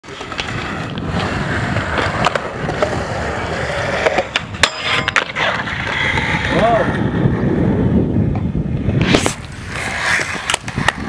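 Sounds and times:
skateboard grinding metal handrail: 0.0 - 7.5
skateboard wheels rolling on concrete: 0.0 - 11.0.

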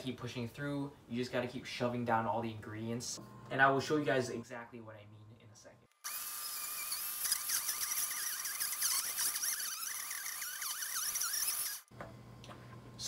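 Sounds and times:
blender motor labouring: 6.0 - 11.9.

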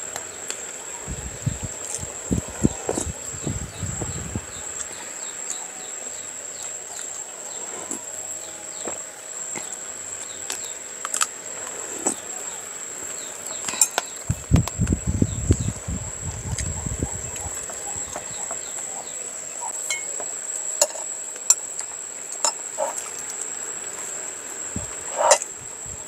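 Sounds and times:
high-pitched insect drone: 0.0 - 26.0
spoon clinking against dishes: 19.8 - 20.2.

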